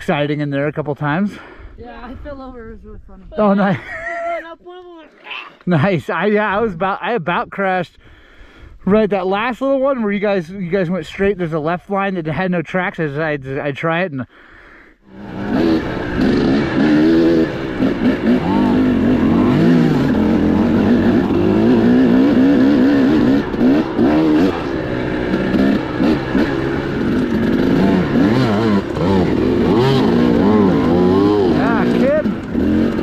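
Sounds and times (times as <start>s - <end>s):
dirt bike engine revving: 15.1s - 33.0s.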